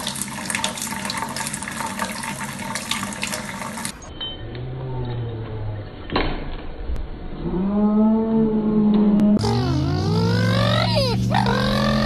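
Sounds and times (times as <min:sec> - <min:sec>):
faucet running: 0:00.0 - 0:04.0.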